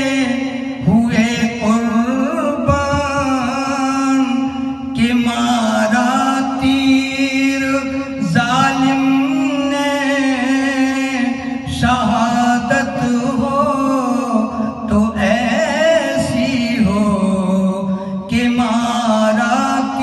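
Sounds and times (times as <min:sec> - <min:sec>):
man singing ornamented phrases: 0:00.0 - 0:20.0.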